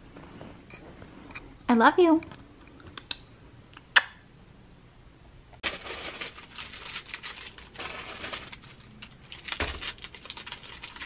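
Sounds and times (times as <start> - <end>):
plastic bag crinkling: 5.6 - 11.0.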